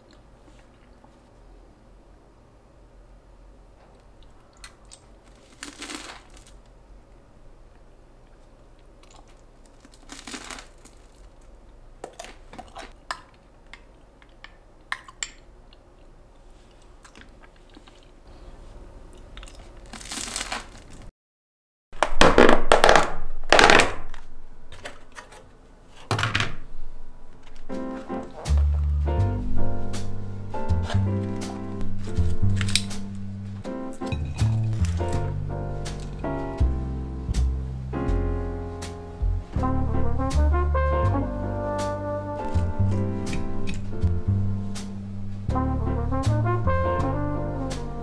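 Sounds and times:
small crunches of eating: 4.0 - 6.7, 8.2 - 21.1.

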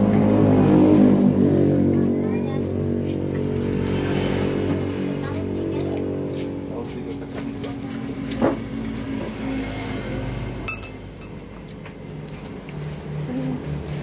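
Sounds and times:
vehicle engine running: 0.0 - 14.0
metal spoon clinking ceramic bowl: 10.7 - 11.4.

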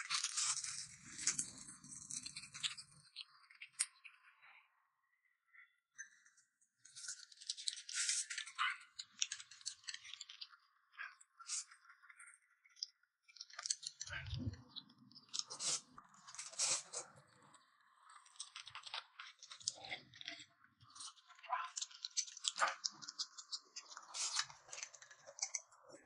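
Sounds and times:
noodles slurped and chewed: 13.5 - 26.0.

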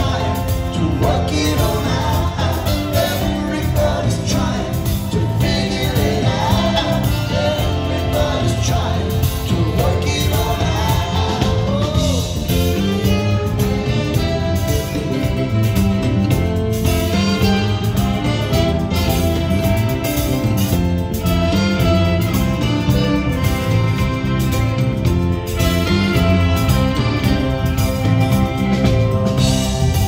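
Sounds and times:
man singing: 0.0 - 15.8
live band playing: 0.0 - 30.0.

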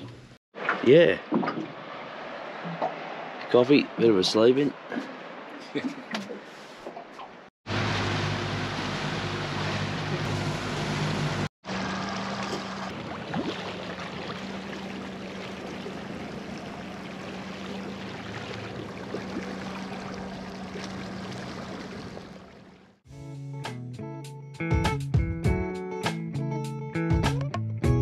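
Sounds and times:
wind: 0.0 - 23.0
water rushing: 0.6 - 5.7, 7.0 - 23.0
outboard motor humming: 7.7 - 23.0.

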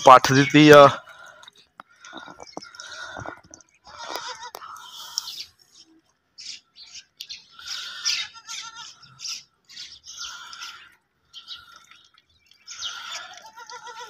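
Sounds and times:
goat kids bleating: 2.8 - 5.4, 7.6 - 9.5, 12.7 - 14.0.

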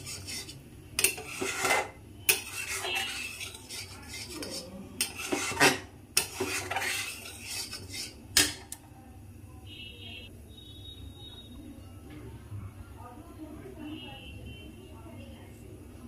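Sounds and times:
metal spoon scraping a pan: 0.0 - 8.8.

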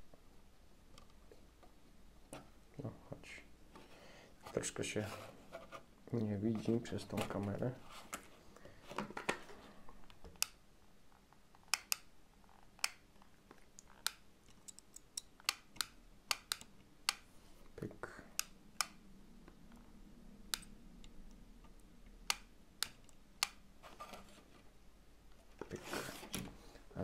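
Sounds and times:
circuit board clicks and taps: 11.7 - 12.1, 14.0 - 17.2.

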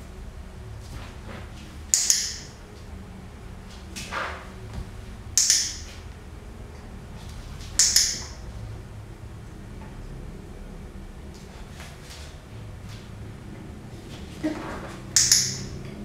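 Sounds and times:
dog-training clicker clicking: 1.9 - 2.5, 5.4 - 5.9, 7.8 - 8.4, 15.2 - 15.8.

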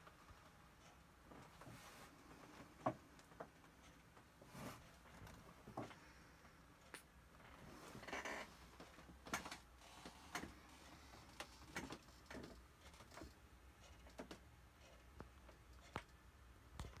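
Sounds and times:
faint irregular clicks and taps: 6.8 - 7.2, 8.8 - 17.0.

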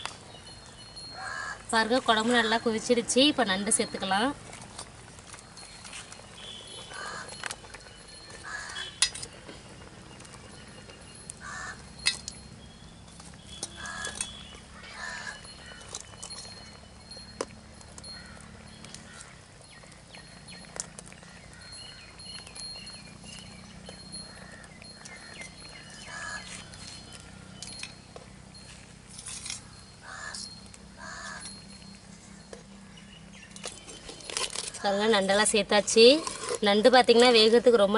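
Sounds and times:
crow cawing: 1.2 - 1.6, 6.9 - 7.3, 8.4 - 9.0, 11.4 - 11.8, 13.8 - 16.0, 18.2 - 18.5, 19.1 - 19.4, 26.0 - 26.6, 30.0 - 30.4, 31.0 - 31.5.

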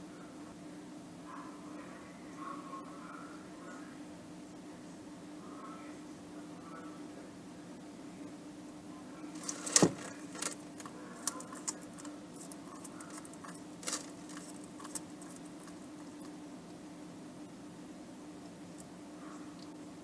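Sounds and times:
faint low hum: 0.0 - 20.0
lizard crunching vegetable: 9.3 - 16.4.

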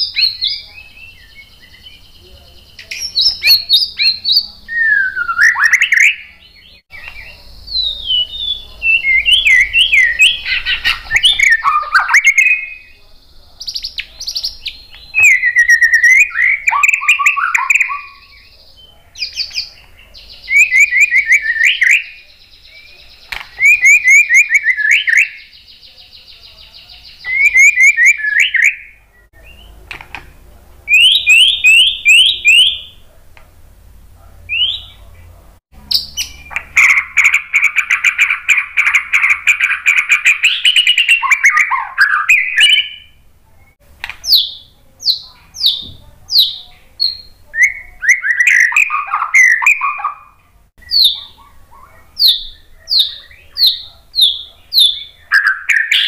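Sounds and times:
songbird singing: 0.0 - 56.0.

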